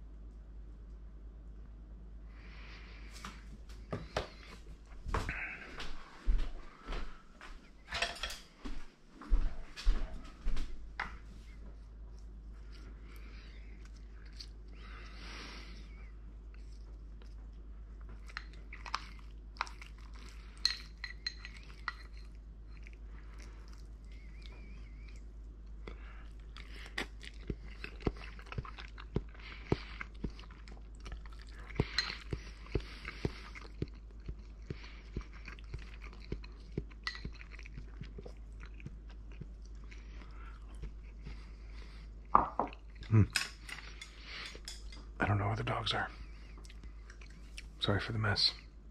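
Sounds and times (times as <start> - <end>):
person chewing: 9.5 - 45.2, 46.2 - 47.8.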